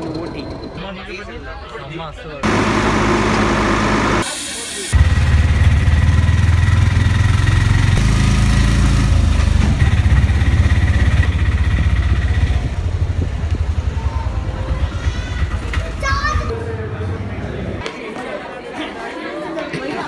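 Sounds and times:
engine running: 2.4s - 4.3s, 4.9s - 14.0s.

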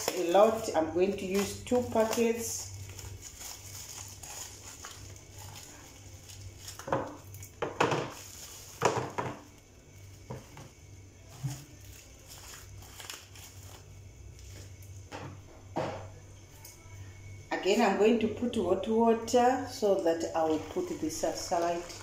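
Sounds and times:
plastic packets crinkling: 0.0s - 14.8s.

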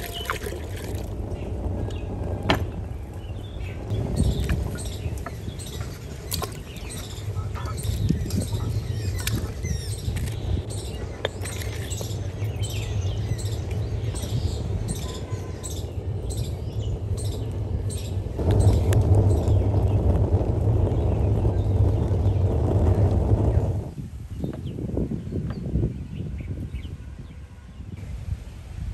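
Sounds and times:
steady low rumble: 0.0s - 25.2s
small birds chirping: 1.3s - 20.1s.

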